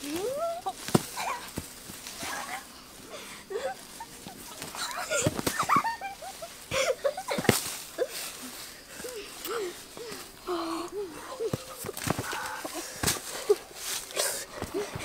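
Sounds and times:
thuds of landing on ground: 0:00.8 - 0:02.3, 0:04.6 - 0:05.9, 0:06.7 - 0:07.8, 0:11.5 - 0:13.3.

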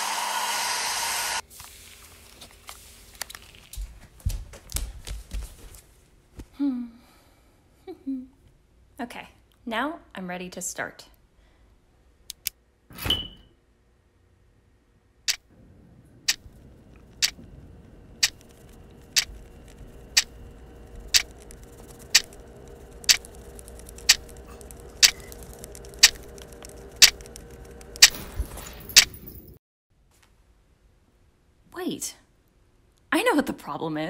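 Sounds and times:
faint steady hum: 0:13.8 - 0:29.6.

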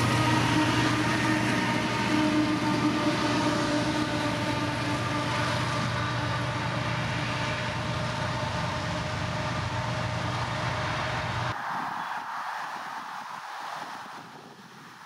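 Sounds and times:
diesel locomotives drone: 0:00.0 - 0:14.9.

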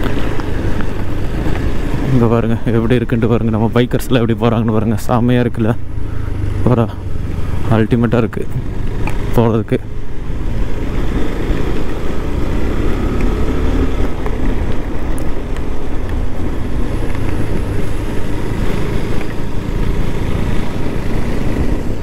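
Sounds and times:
motorcycle engine running: 0:05.5 - 0:22.0
wind rumble on microphone: 0:10.0 - 0:22.0.

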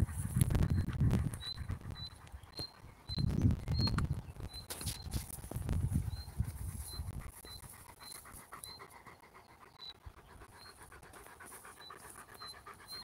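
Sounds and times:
dog panting: 0:00.0 - 0:03.2, 0:06.0 - 0:13.0.

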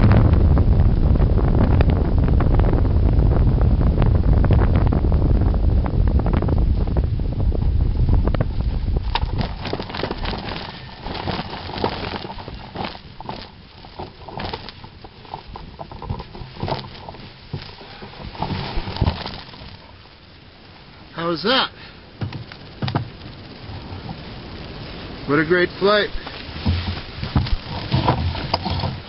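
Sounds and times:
wind buffeting microphone: 0:00.0 - 0:21.0, 0:22.0 - 0:29.0
dry grass brushing and crackling: 0:08.2 - 0:21.4, 0:22.1 - 0:29.0.

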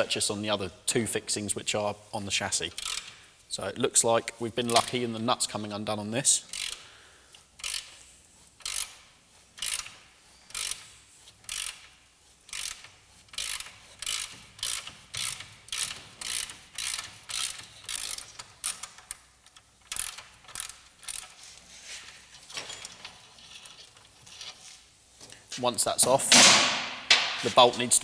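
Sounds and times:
socket ratchet clicking: 0:02.7 - 0:03.2, 0:06.5 - 0:06.9, 0:07.6 - 0:08.0, 0:08.6 - 0:21.4.

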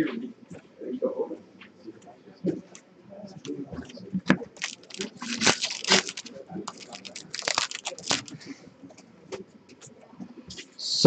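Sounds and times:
foil wrapper tearing and crinkling: 0:04.6 - 0:08.4.

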